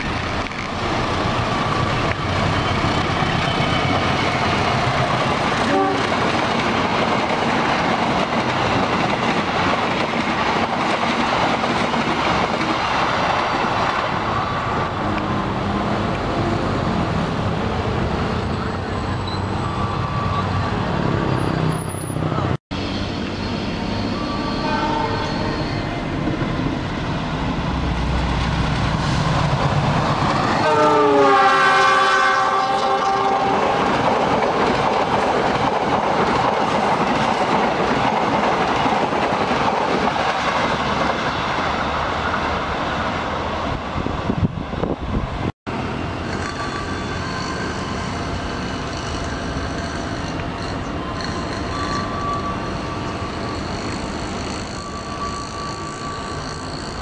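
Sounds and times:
diesel train running: 0.0s - 57.0s
train coaches rushing past: 0.0s - 57.0s
train horn: 5.6s - 6.3s, 24.1s - 26.0s, 30.5s - 33.9s.

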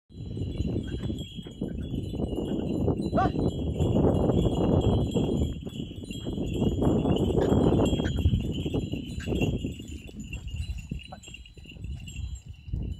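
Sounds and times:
brass bells ringing: 0.3s - 12.6s.

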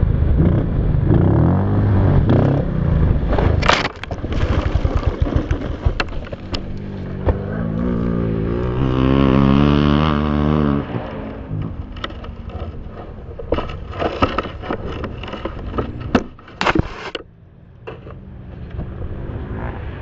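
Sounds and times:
dirt bike engine revving: 0.0s - 16.4s
low engine rumble: 0.0s - 20.0s
bike crashing into dirt: 3.3s - 10.0s.

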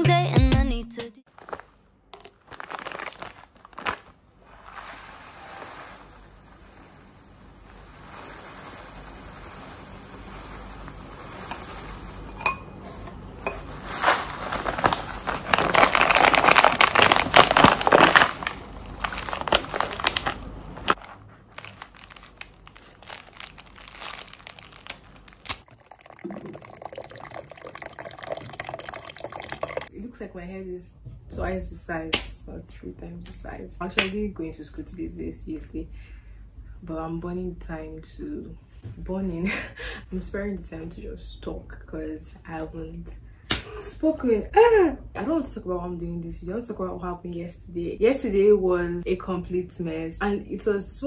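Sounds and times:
plastic bag crinkling: 1.3s - 6.9s, 13.7s - 29.9s
cereal pouring into bowl: 4.8s - 12.4s, 14.0s - 20.3s, 23.0s - 29.9s
water pouring: 25.5s - 29.9s.

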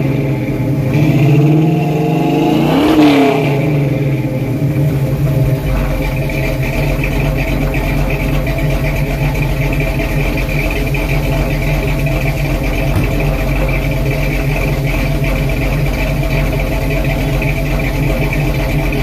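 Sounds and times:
car engine idling: 0.0s - 19.0s.

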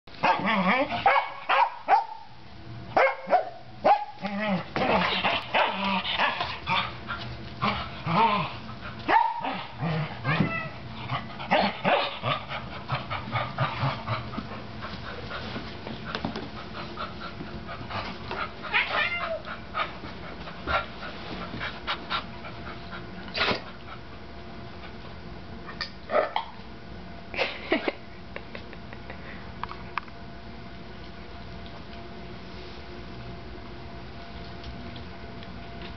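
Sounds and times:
dogs yipping and barking: 0.2s - 2.3s, 3.0s - 4.3s, 5.2s - 6.9s, 9.1s - 10.7s, 11.5s - 12.3s.

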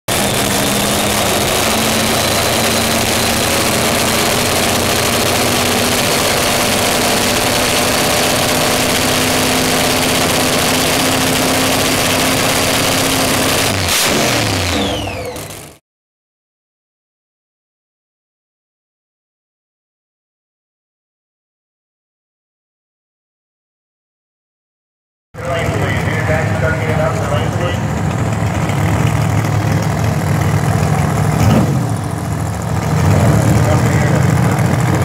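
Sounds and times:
loud engine running: 0.0s - 15.8s, 25.4s - 35.0s.

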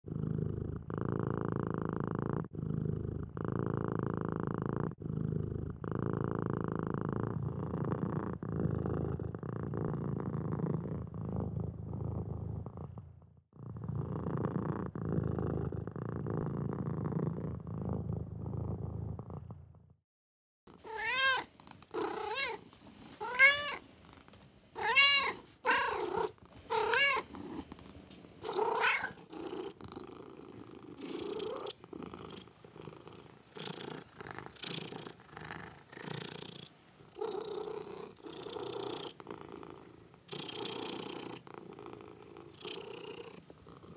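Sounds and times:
cat purring: 0.0s - 20.0s, 20.7s - 43.9s
cat meowing: 20.8s - 21.5s, 22.2s - 22.6s, 23.2s - 23.8s, 24.8s - 27.3s, 28.5s - 29.2s.

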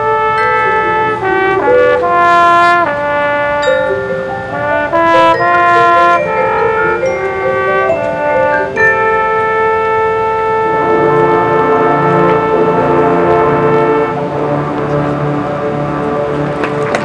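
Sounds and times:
brass section playing chords: 0.0s - 17.0s
cymbals crashing: 0.3s - 9.5s.

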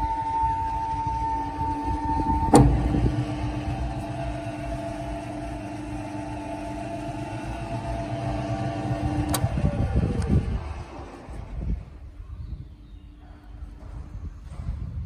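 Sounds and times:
dough mixer motor whining: 0.0s - 11.7s.

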